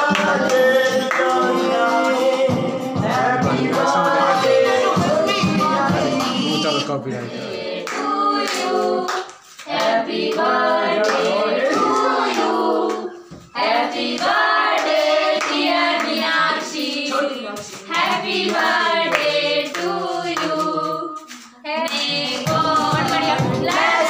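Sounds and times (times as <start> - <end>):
hands clapping: 0.0 - 2.6, 7.8 - 13.1, 14.1 - 24.0
people singing together: 0.0 - 24.0.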